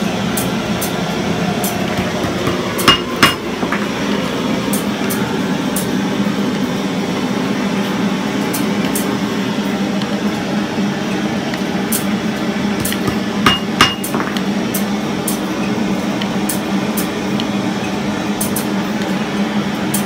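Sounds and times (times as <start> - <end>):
metalworking clatter: 1.6 - 4.0, 12.8 - 15.5.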